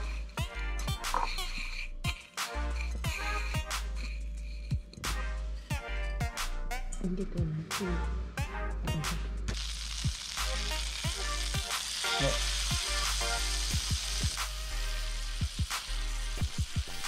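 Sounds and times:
background music with steady beat: 0.0s - 17.0s
fish fillets sizzling in butter: 9.5s - 17.0s.

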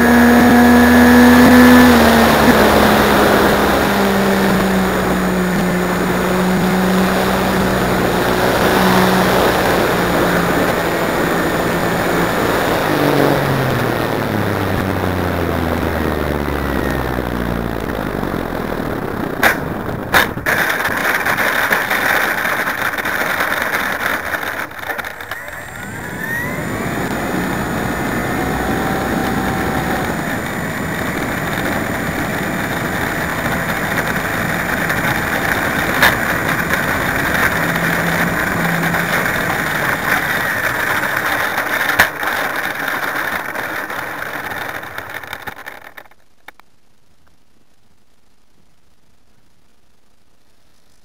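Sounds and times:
sharp knocks: 19.4s - 22.0s
model plane motor and propeller: 20.2s - 46.2s.

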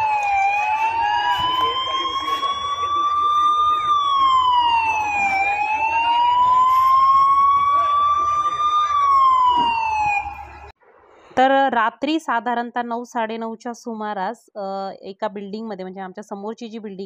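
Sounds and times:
fire engine siren wailing: 0.0s - 10.8s.

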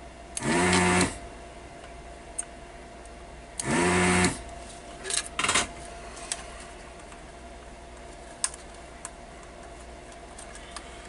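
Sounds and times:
small electric motor whirring: 0.4s - 1.2s, 3.6s - 4.4s.

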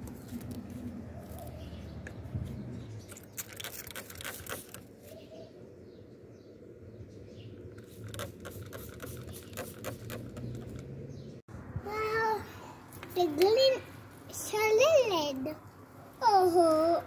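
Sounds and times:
spray bottle squirting: 3.1s - 4.9s, 7.7s - 10.9s.

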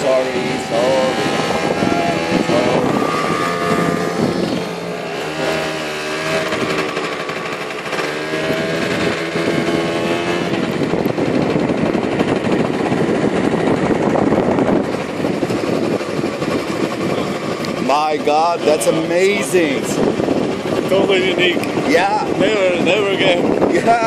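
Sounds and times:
motor scooter engine running: 0.0s - 24.0s
wind and road noise: 0.0s - 24.0s.

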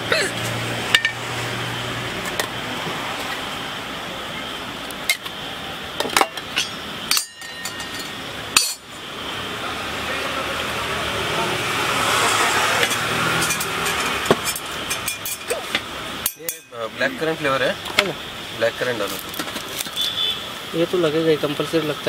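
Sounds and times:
steady background noise: 0.0s - 22.0s
metal tins and pots clinking: 6.0s - 8.8s, 12.8s - 15.6s.

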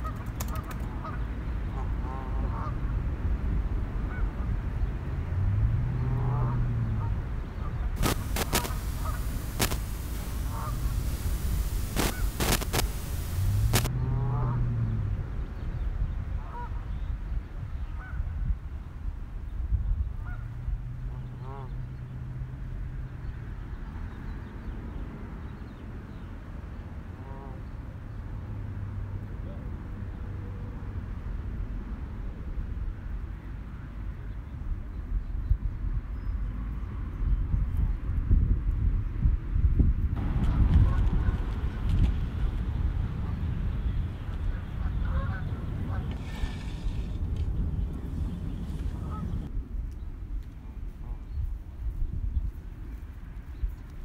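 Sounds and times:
low outdoor rumble: 4.8s - 16.1s
bird calls: 8.0s - 13.9s
geese honking: 8.0s - 13.9s, 44.6s - 46.5s
sharp clicks: 8.0s - 13.9s.

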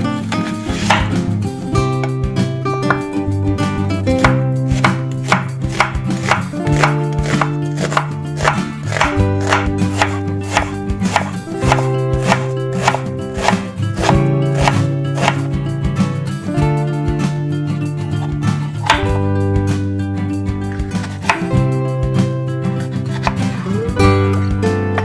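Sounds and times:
guitar background music: 0.0s - 25.0s
knife chopping on wooden board: 0.7s - 1.2s, 4.2s - 15.5s, 18.8s - 19.2s, 20.9s - 21.6s, 23.1s - 23.6s.

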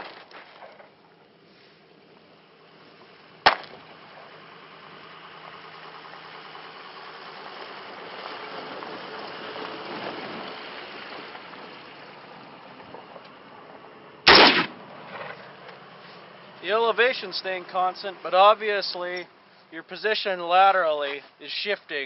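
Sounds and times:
gunshot crack: 3.4s - 3.8s, 14.3s - 15.4s.

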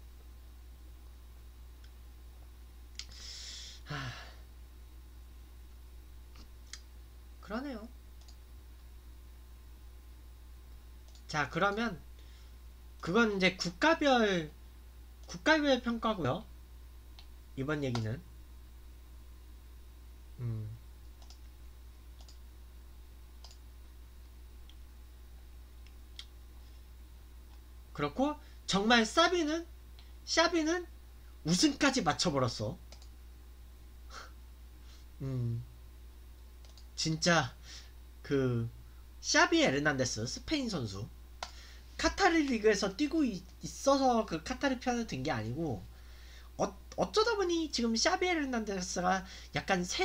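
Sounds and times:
steady low hum: 0.0s - 50.0s
faint clicks: 2.9s - 3.2s, 8.2s - 8.9s, 11.0s - 11.8s, 21.0s - 22.4s, 23.4s - 23.6s, 24.2s - 24.8s, 32.9s - 33.2s, 36.6s - 36.9s
lip click: 2.9s - 3.2s, 6.3s - 6.9s, 8.2s - 8.4s, 25.8s - 26.4s, 32.9s - 33.1s, 36.6s - 36.9s
man sighing: 3.1s - 4.5s, 20.4s - 20.8s, 35.2s - 35.6s
man humming low hm: 20.4s - 20.8s, 35.2s - 35.7s.

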